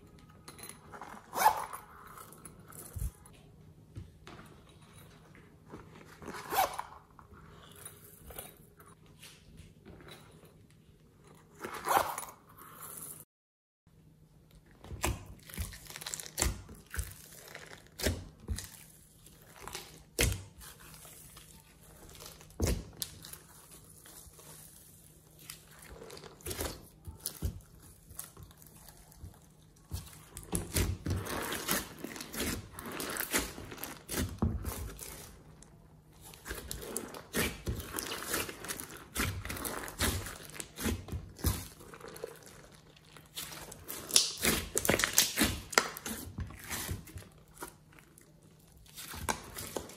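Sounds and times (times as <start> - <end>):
slime squishing by hand: 14.6 - 49.9.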